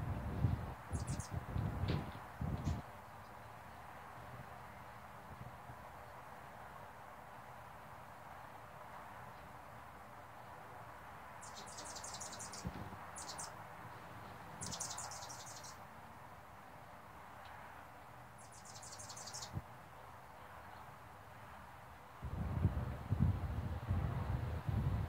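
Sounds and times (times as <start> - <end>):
hummingbird chattering: 1.0 - 1.3, 11.4 - 12.6, 13.2 - 13.5, 14.6 - 15.7, 18.4 - 19.5.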